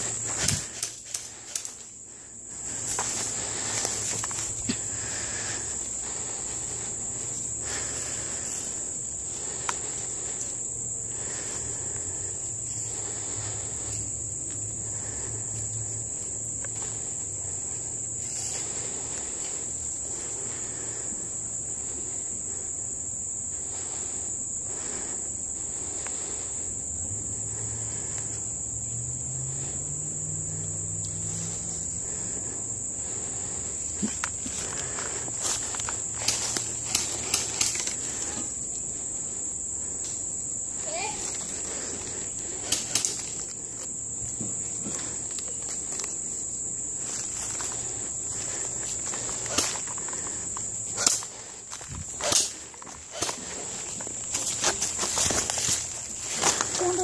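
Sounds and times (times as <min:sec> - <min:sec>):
faint rustles: 0:00.0 - 0:21.1, 0:30.6 - 0:57.0
high-pitched insect chorus: 0:00.0 - 0:57.0.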